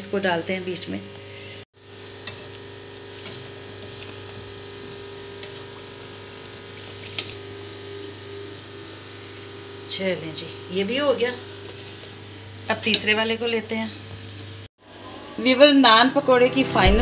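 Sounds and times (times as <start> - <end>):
bread deep-frying in oil: 1.8 - 9.2
low hum: 16.7 - 17.0.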